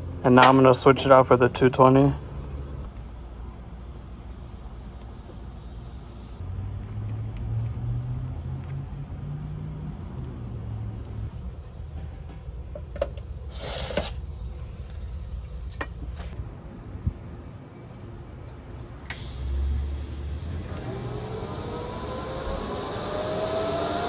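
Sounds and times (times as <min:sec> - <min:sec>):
scrape: 0:13.5 - 0:14.2.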